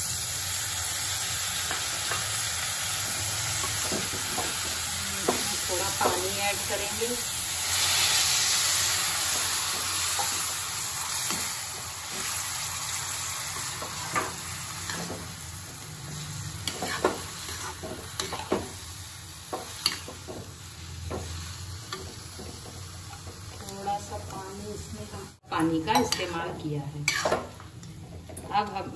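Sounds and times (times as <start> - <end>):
water sizzling in hot pan: 0.0 - 27.7
metal ladle scraping pan: 16.1 - 18.6.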